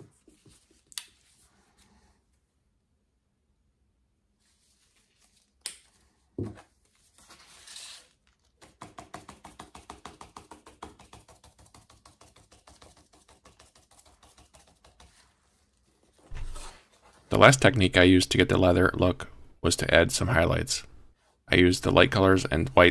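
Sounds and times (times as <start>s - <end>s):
objects knocking on workbench: 6.4s - 6.6s
paintbrush dabbing taps: 8.6s - 15.6s.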